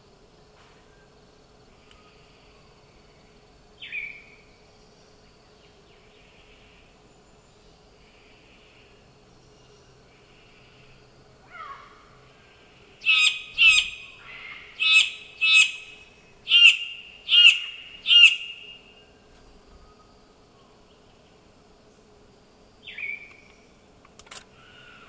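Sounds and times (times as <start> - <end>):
bird calling loudly: 13.0 - 18.9.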